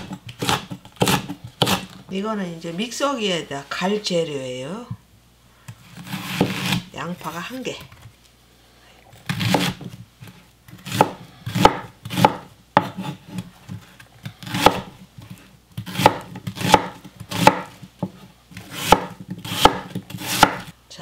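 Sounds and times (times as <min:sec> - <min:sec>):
knife chopping onion on board: 0:00.0 - 0:02.0, 0:06.0 - 0:06.9, 0:09.3 - 0:13.8, 0:14.4 - 0:20.7.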